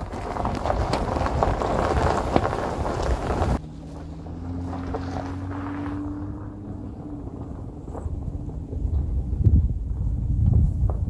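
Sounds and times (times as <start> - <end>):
wind buffeting microphone: 0.0 - 3.6, 6.3 - 11.0
truck engine droning: 0.0 - 11.0
tyres rolling on snow: 0.0 - 11.0.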